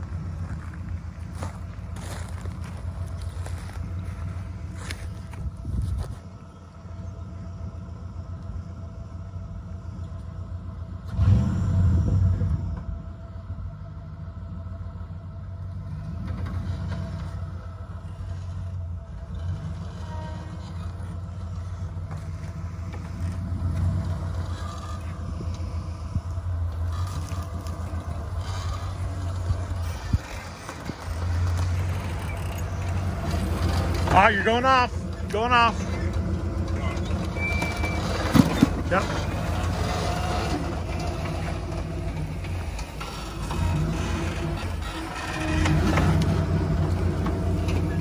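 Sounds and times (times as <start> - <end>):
truck engine revving: 0.0 - 48.0.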